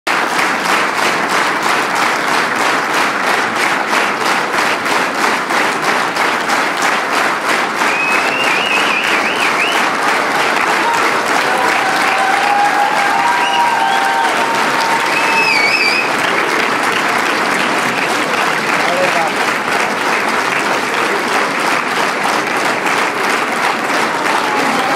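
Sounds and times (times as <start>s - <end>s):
audience applauding: 0.1s - 24.9s
whistling: 7.9s - 9.8s, 15.1s - 16.1s.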